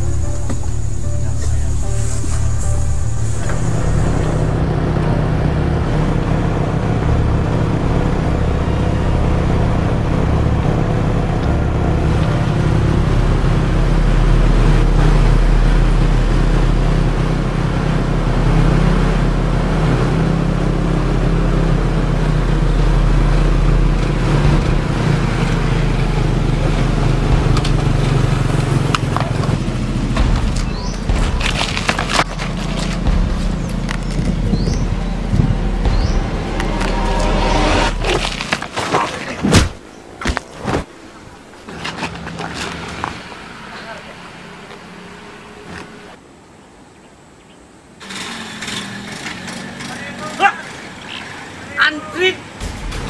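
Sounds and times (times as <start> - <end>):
small motorcycle engines running: 48.0 - 52.2.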